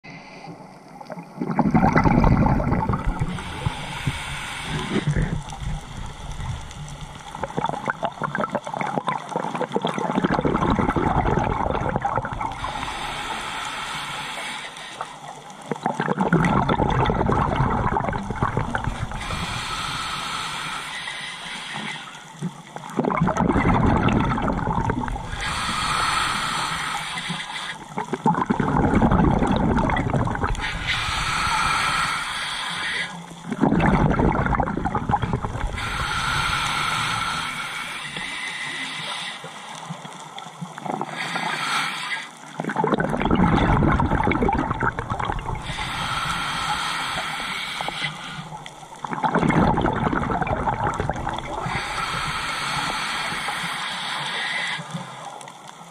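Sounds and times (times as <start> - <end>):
regulator inhale hiss: 0.0 - 0.9, 2.9 - 7.4, 12.5 - 15.6, 18.2 - 22.7, 24.8 - 28.1, 30.4 - 33.5, 35.3 - 42.6, 45.4 - 49.0, 51.2 - 55.9
exhaled bubbles gurgling: 0.3 - 55.9.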